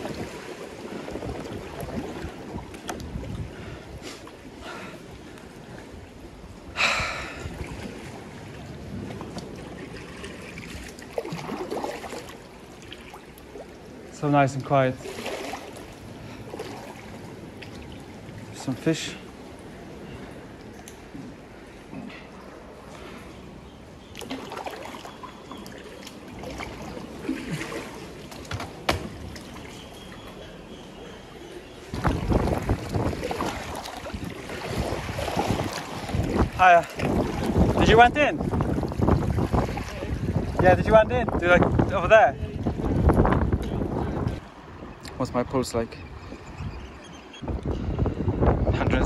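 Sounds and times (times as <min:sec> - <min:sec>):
water lapping around a kayak: 0:00.0 - 0:45.0
loud splash: 0:09.7 - 0:13.2, 0:15.0 - 0:15.9, 0:32.0 - 0:40.4
light knocks on kayak: 0:28.5 - 0:29.2.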